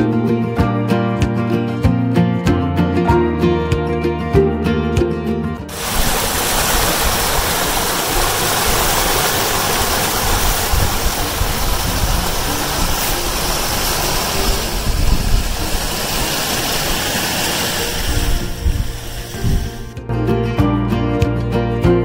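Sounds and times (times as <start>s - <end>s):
waterfall splashing into pond: 5.7s - 20.0s.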